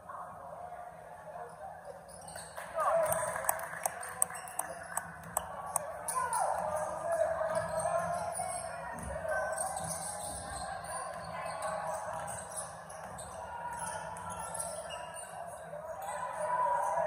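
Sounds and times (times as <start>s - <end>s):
sneakers squeaking: 4.1s - 15.6s.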